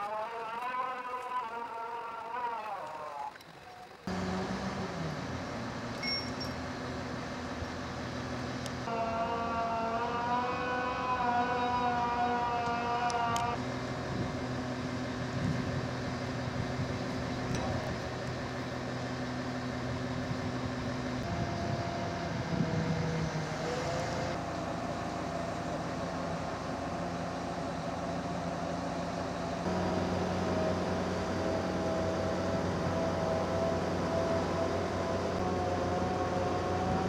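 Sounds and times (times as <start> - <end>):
crane diesel engines humming: 0.0 - 37.0.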